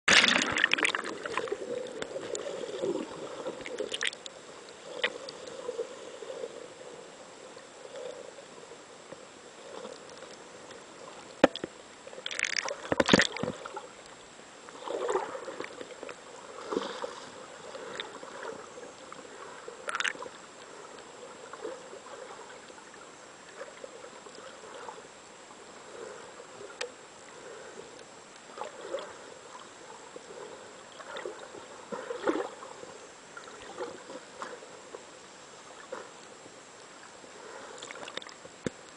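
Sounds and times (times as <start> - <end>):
bubbles bursting: 0.1 - 1.5
water sloshing underwater: 0.1 - 38.9
knocks and splashing: 11.4 - 11.7, 12.3 - 13.6.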